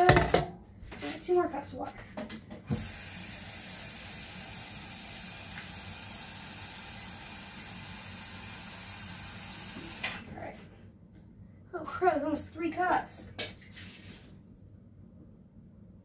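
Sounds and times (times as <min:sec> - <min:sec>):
kitchen tap running: 0:02.6 - 0:10.3.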